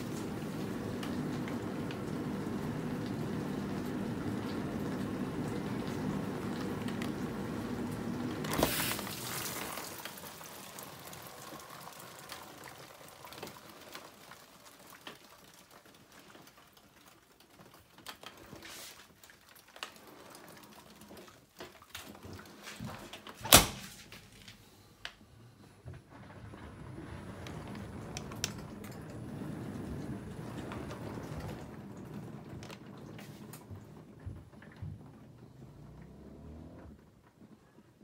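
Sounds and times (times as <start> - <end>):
dishwasher water spraying: 0.0 - 12.2.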